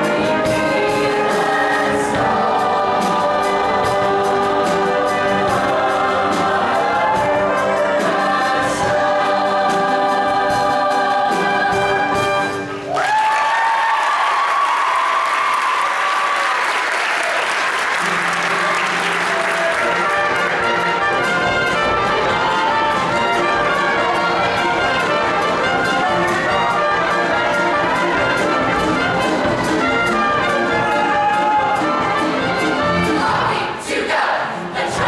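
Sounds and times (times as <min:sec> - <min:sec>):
steady drum beat: 0:00.0 - 0:12.8, 0:19.1 - 0:33.6
brass instruments: 0:00.0 - 0:35.0
audience applause: 0:12.9 - 0:21.3.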